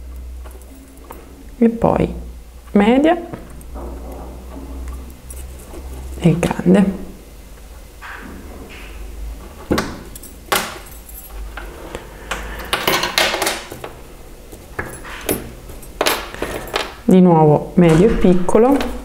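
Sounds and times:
brass wire pieces clinking: 0.2 - 1.6, 3.4 - 6.4, 9.7 - 17.1.

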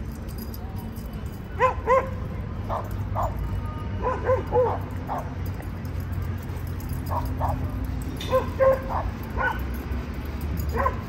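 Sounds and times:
low city traffic rumble: 0.0 - 11.0
dog yipping: 1.6 - 3.4, 4.0 - 5.4, 7.1 - 9.8, 10.7 - 11.0.

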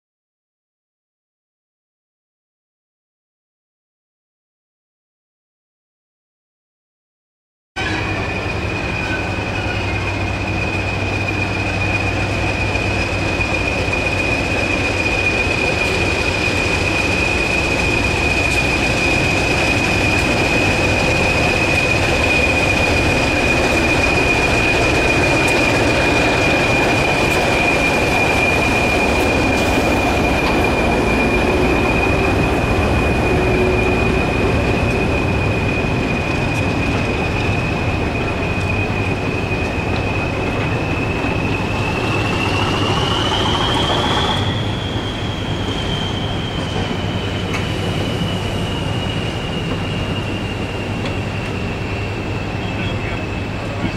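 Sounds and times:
locomotive engine and wheels rumbling: 7.8 - 53.9
high-pitched whistle: 21.6 - 53.5.

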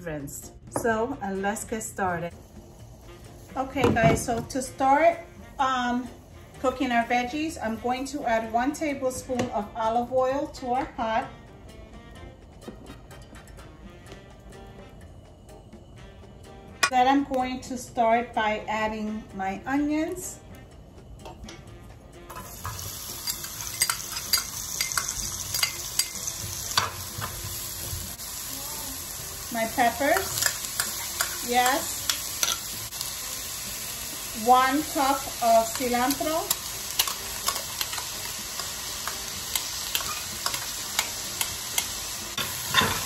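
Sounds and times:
onion sizzling in hot oil: 2.2 - 8.1, 22.3 - 43.0.

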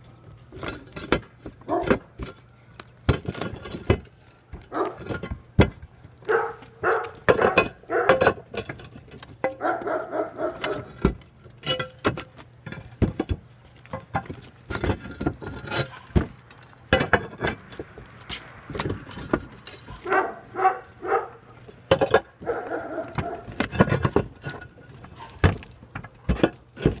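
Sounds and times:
concrete tiles clacking and scraping: 6.6 - 9.6, 10.6 - 20.2, 21.7 - 27.0.

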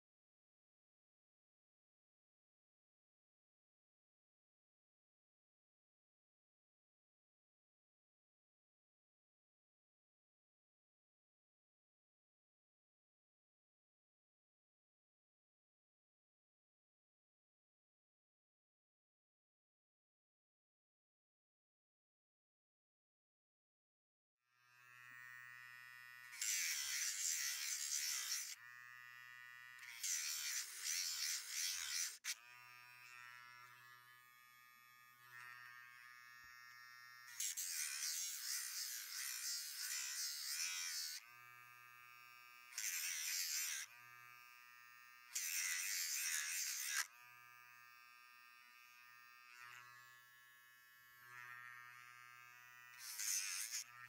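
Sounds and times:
electric nail drill whine: 24.6 - 54.0
grinding bit on toenails: 24.7 - 54.0.

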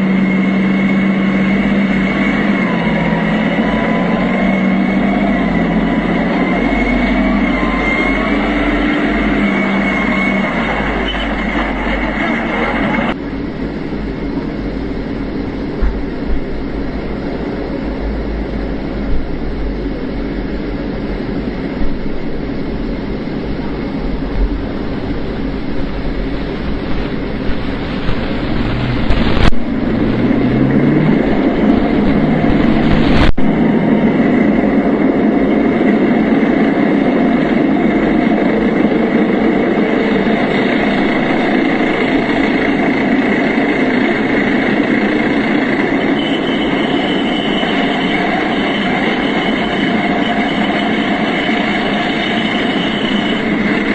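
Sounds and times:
tank engine and running gear: 0.0 - 13.2.

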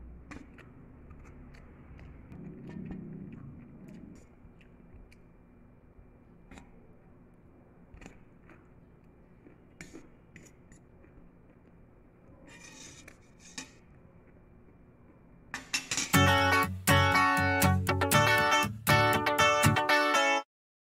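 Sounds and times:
loud strummed guitar music: 16.1 - 20.4.

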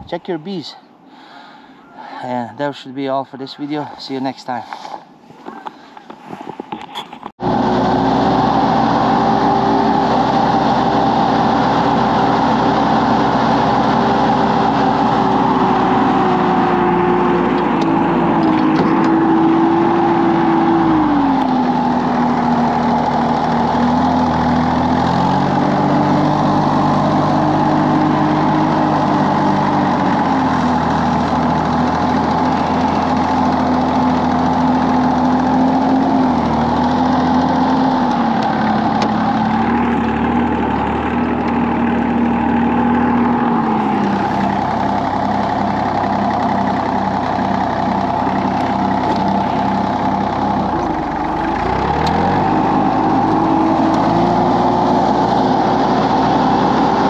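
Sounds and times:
tractor engine running: 6.0 - 57.0
steady high whine: 37.7 - 56.7.

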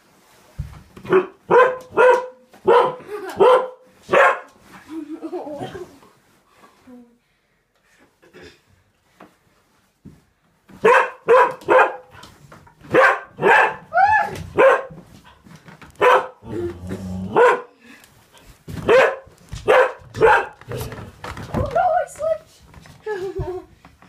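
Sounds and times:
dog barking angrily: 1.1 - 4.5, 10.8 - 12.1, 12.9 - 13.9, 14.6 - 15.0, 16.0 - 16.5, 17.3 - 17.7, 18.8 - 20.8
dog rumbling growl: 16.4 - 17.4.

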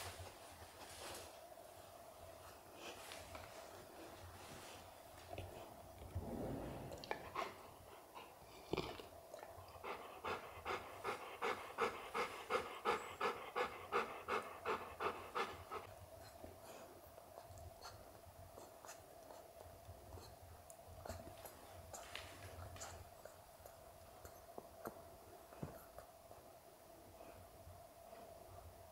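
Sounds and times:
dog panting: 9.6 - 26.1.

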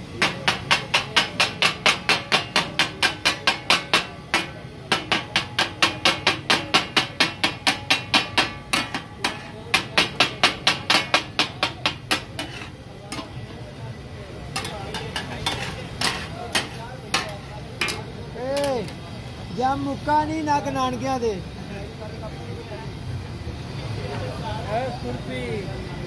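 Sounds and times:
metal spatulas clanging on iron griddle: 0.0 - 19.0
food frying: 0.0 - 20.8.

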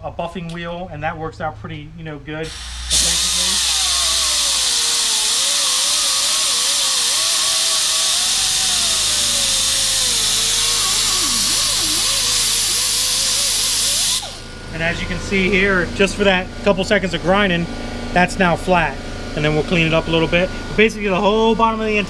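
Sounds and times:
air tool hiss: 2.5 - 14.5
buffing wheel grinding whine: 2.5 - 22.0.

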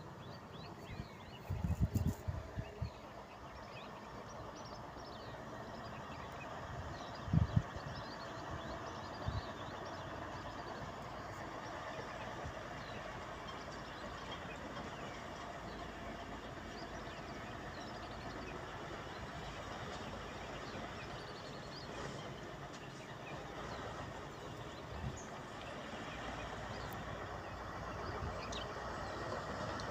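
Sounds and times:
distant truck engines rumbling: 0.0 - 29.9.

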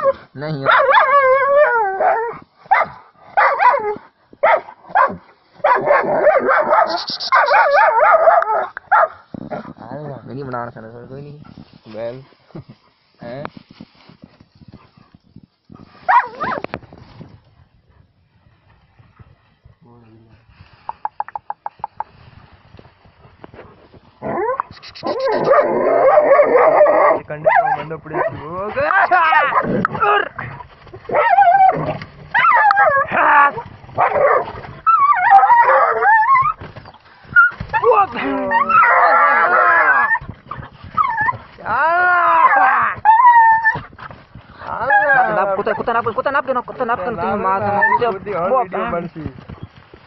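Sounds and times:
dog yelping: 0.7 - 9.1, 16.1 - 16.6, 24.2 - 30.4, 31.1 - 43.9, 44.7 - 45.8, 47.3 - 48.5
dog wavering cries: 31.1 - 36.6, 37.3 - 40.2, 41.0 - 43.8, 44.7 - 45.8, 47.3 - 48.2.

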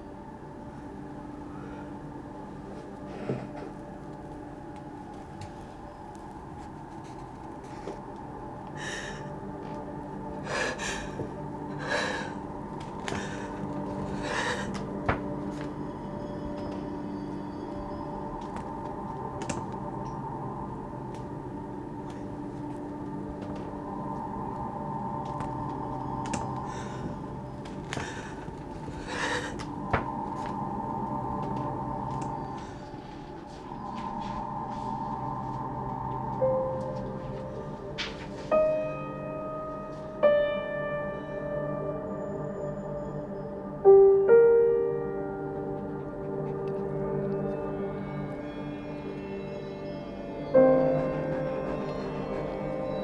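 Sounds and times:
gong-like drone of film score: 0.0 - 53.0
low steady hum: 0.0 - 53.0.

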